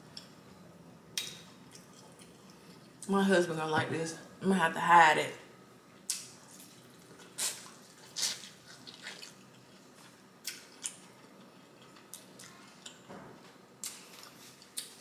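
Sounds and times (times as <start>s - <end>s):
corn on the cob being chewed: 6.5s - 13.0s.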